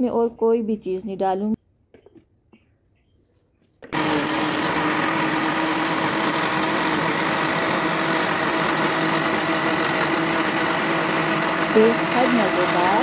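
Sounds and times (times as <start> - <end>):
blender motor running: 3.9 - 13.0.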